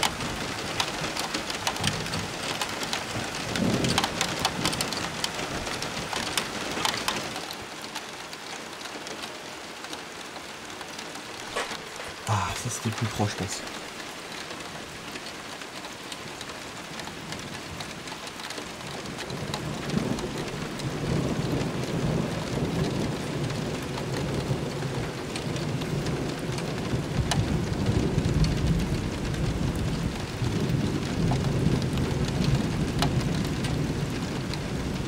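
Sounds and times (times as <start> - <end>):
raindrop ticks: 0.0 - 35.0
steady rain: 0.0 - 35.0
thunder rumbling: 3.0 - 6.4.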